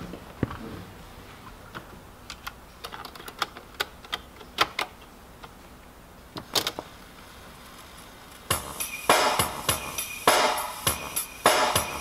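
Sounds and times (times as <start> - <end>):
cassette mechanism clicks and taps: 2.3 - 5.6.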